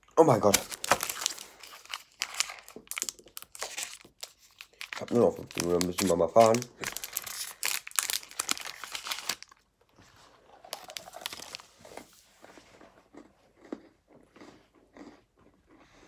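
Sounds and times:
packaging crinkling: 0:00.2 - 0:12.2.

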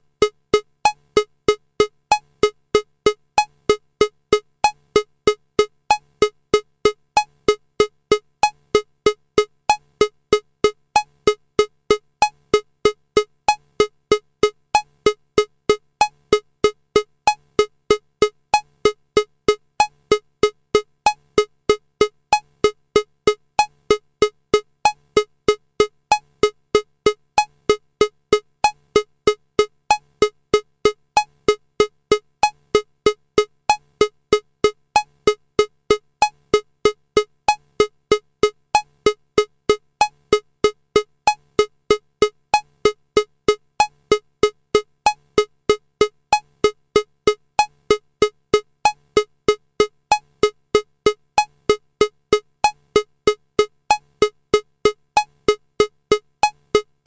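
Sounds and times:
electronic metronome clicking: 0:38.8 - 0:56.9.

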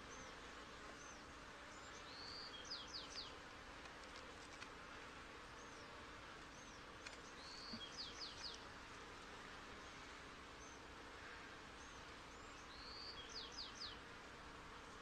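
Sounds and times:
honey bees humming: 0:00.0 - 0:15.0
songbird singing: 0:01.0 - 0:03.4, 0:05.5 - 0:08.7, 0:11.8 - 0:14.1.

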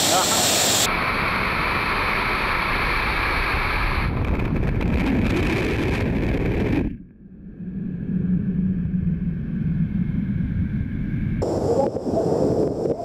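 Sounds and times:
high-pressure water spray hissing: 0:00.0 - 0:01.0.

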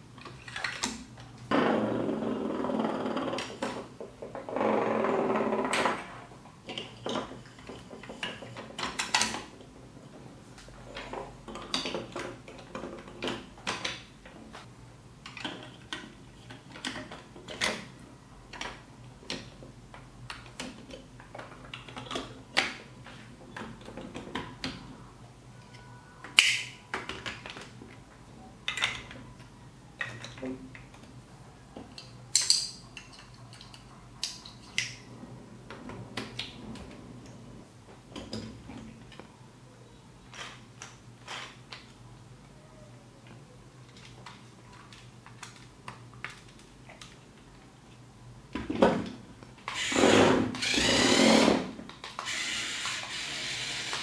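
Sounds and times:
plastic blocks clicking and clattering: 0:20.3 - 0:22.8, 0:26.2 - 0:28.0, 0:28.6 - 0:31.2, 0:31.8 - 0:35.0, 0:43.8 - 0:48.0
plastic parts snapping: 0:26.2 - 0:27.8.

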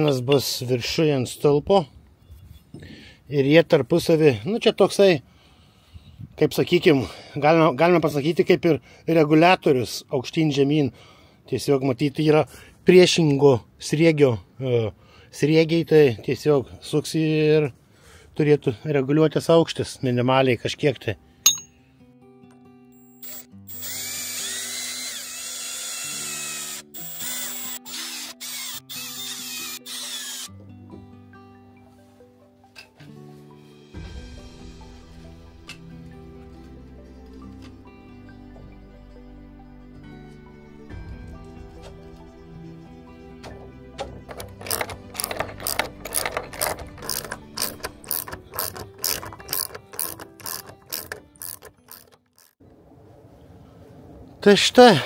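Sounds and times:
ratchet wrench clicking: 0:23.0 - 0:24.6, 0:27.0 - 0:30.5, 0:44.3 - 0:52.6
cordless drill motor whining: 0:23.0 - 0:30.5, 0:44.3 - 0:52.6.

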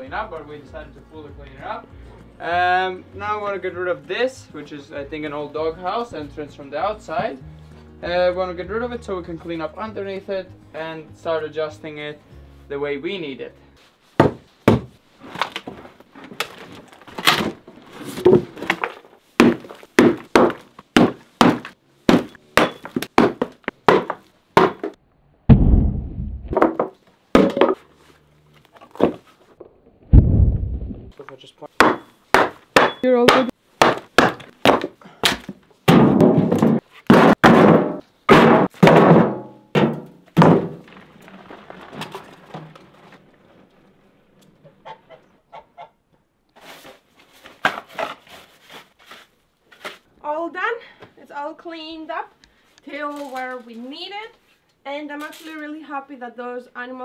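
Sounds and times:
wooden boards knocking and clattering: 0:14.2 - 0:25.0, 0:26.6 - 0:27.8, 0:28.8 - 0:29.3, 0:31.8 - 0:43.7
heavy deep thuds: 0:25.5 - 0:26.6, 0:30.1 - 0:31.1.

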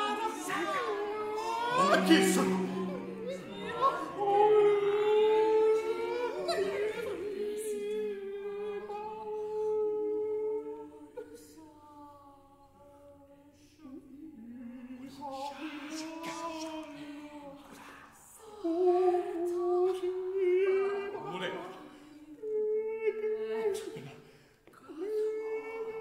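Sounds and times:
voices singing held notes: 0:00.0 - 0:11.5.

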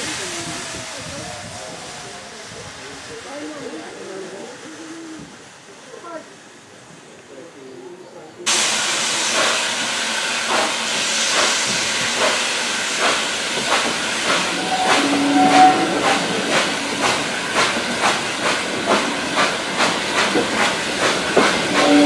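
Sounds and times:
steam hissing: 0:00.0 - 0:06.0, 0:08.5 - 0:22.0
steam locomotive exhaust chuffs: 0:08.5 - 0:22.0.

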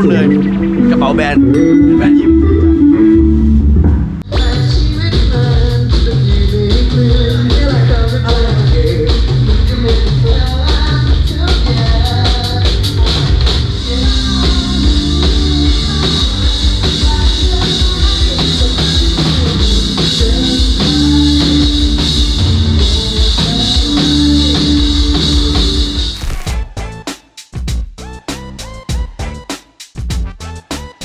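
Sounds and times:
electric guitar: 0:00.0 - 0:26.8
drum kit: 0:00.0 - 0:31.0
live rock band playing: 0:00.0 - 0:31.0.

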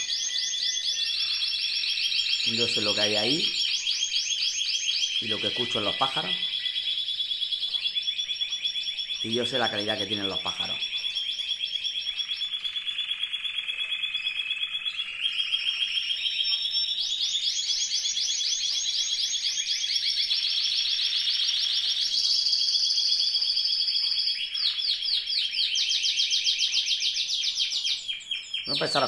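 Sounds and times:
canary singing: 0:00.0 - 0:29.0.

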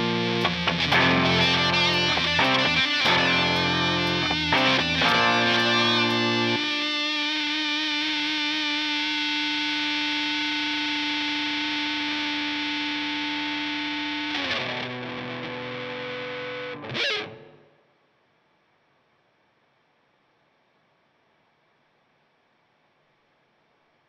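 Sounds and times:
distorted electric guitar chord: 0:00.0 - 0:17.7.

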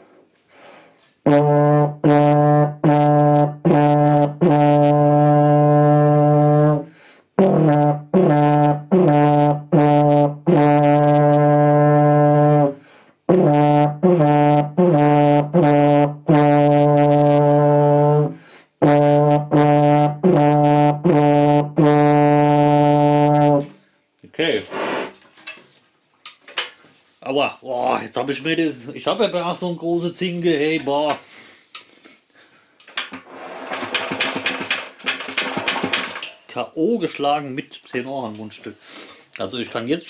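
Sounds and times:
player breathing: 0:00.1 - 0:01.0, 0:06.9 - 0:07.3, 0:12.8 - 0:13.2, 0:18.4 - 0:18.8, 0:31.2 - 0:32.9, 0:38.8 - 0:39.4
tenor horn notes: 0:01.2 - 0:23.8.

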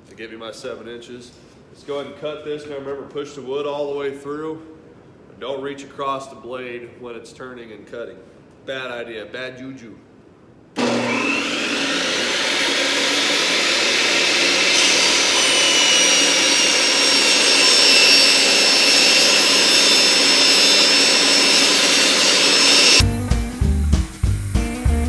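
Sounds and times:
table saw motor whining: 0:10.8 - 0:25.0
saw blade ripping wooden board: 0:12.1 - 0:23.0.

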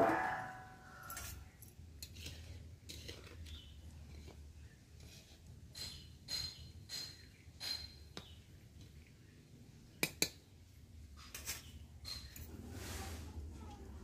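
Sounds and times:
metal spatula scraping iron pan: 0:00.0 - 0:01.4.

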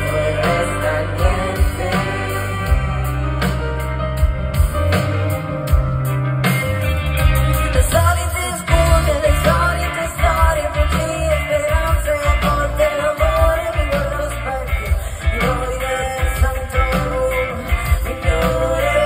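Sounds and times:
live band with keyboards and bass: 0:00.0 - 0:19.0
woman singing into microphone: 0:07.7 - 0:19.0.

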